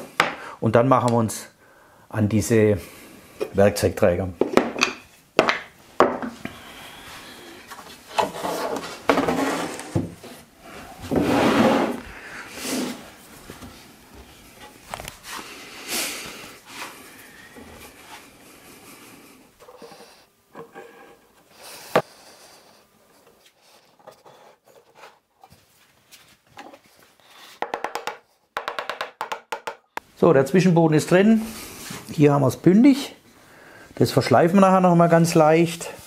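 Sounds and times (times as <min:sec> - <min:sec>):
wood sliding and rubbing: 0:07.7 - 0:15.5
sharp knocks on wood: 0:27.6 - 0:29.8.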